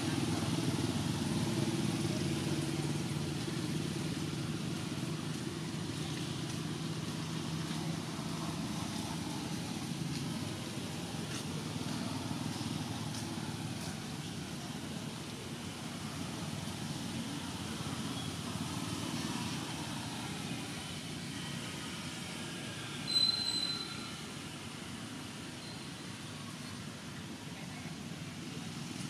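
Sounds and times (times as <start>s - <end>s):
vehicle engine hum: 0.0s - 23.1s.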